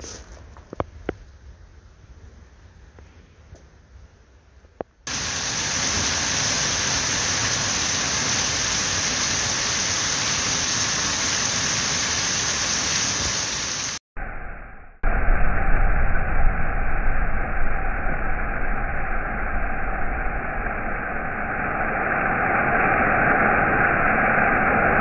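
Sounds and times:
heavy rain hissing: 5.1s - 14.0s.

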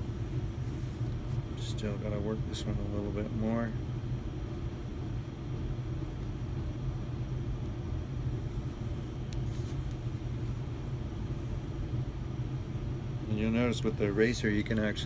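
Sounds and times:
machinery rumble: 0.0s - 15.0s.

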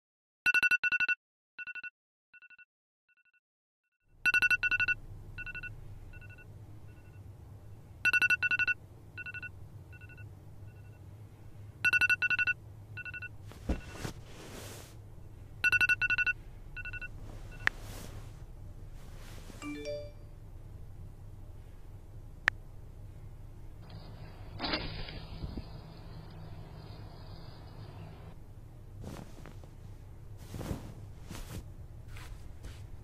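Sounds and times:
smartphone ringtone beeps: 4.3s - 6.4s, 8.0s - 11.0s, 11.8s - 14.0s, 15.6s - 17.7s, 19.6s - 20.2s.

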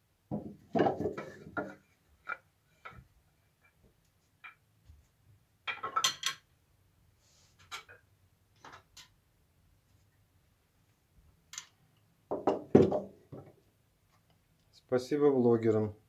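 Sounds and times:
metal chisels clattering: 5.7s - 6.5s.

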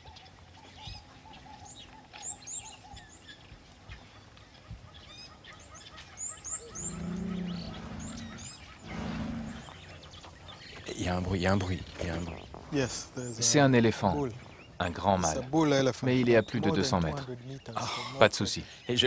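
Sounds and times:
birds chirping: 0.0s - 19.0s
elephant long low calls: 6.5s - 10.1s.

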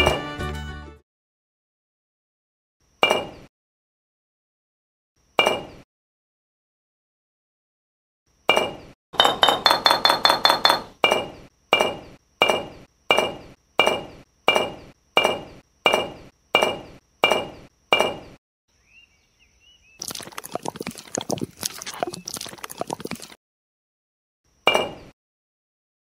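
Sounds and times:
trowel scraping wet cement: 20.0s - 23.4s.

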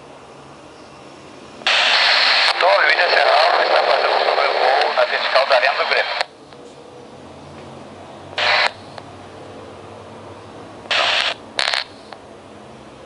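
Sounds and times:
faint steady hum and hiss: 0.0s - 9.6s
radio static bursts: 1.7s - 6.3s, 8.4s - 9.0s, 10.9s - 12.2s.

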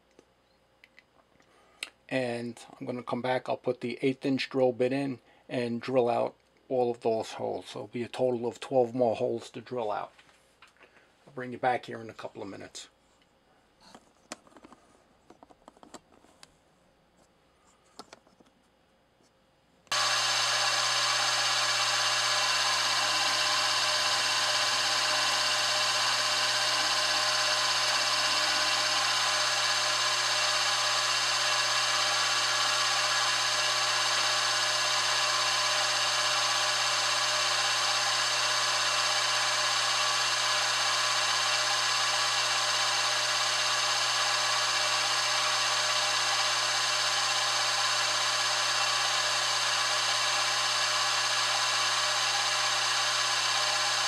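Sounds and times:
drill bit cutting metal: 19.9s - 54.0s
milling machine spindle whine: 19.9s - 54.0s.

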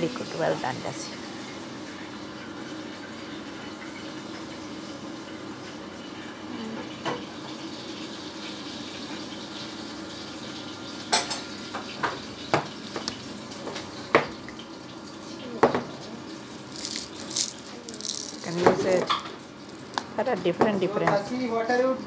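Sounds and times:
kitchenware clinking: 11.1s - 11.5s, 16.6s - 19.4s.

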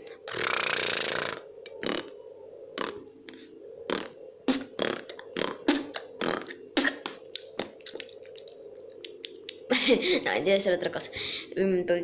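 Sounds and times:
boy beatboxing: 0.2s - 2.1s, 2.8s - 3.0s, 3.9s - 9.7s.

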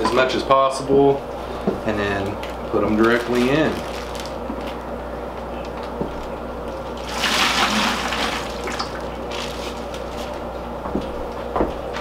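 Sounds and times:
water splashing into bucket: 7.0s - 9.2s.

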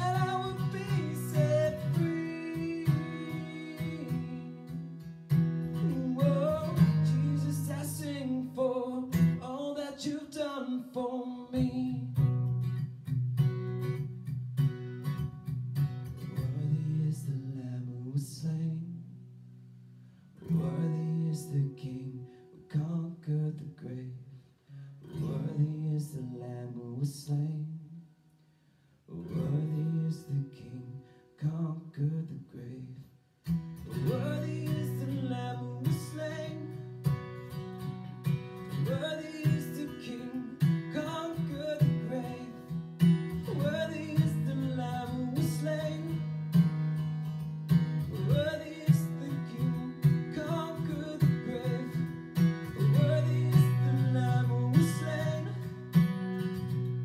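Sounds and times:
man singing: 0.0s - 5.0s, 5.7s - 12.4s, 16.3s - 19.0s, 20.4s - 24.2s, 25.1s - 28.0s, 29.1s - 33.1s, 33.9s - 37.0s, 38.6s - 46.7s, 48.0s - 56.0s
acoustic guitar strumming: 0.0s - 18.8s, 19.6s - 23.5s, 24.7s - 28.1s, 33.4s - 57.0s.

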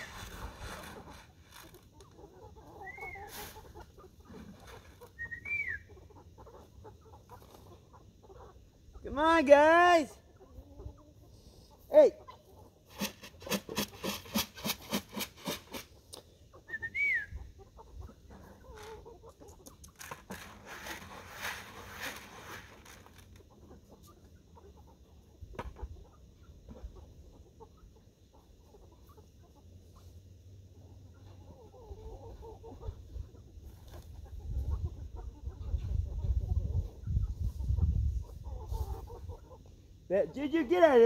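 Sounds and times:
rustling: 0.0s - 2.3s, 18.6s - 23.5s
chickens clucking: 0.0s - 41.0s.

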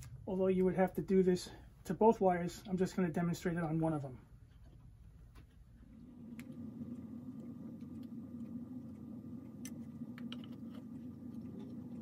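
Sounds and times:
soldering gun humming: 5.8s - 12.0s.

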